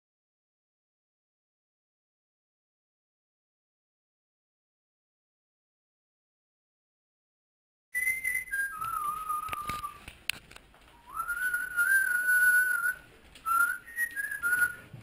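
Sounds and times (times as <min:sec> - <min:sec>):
person whistling a slow tune: 0:08.0 - 0:10.0.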